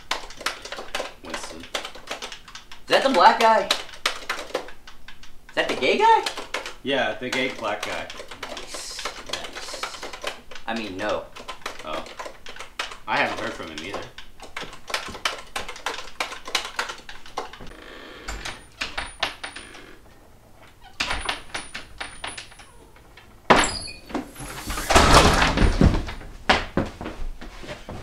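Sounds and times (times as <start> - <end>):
laptop keyboard typing: 0.0 - 17.7
door opening and shutting: 17.6 - 26.3.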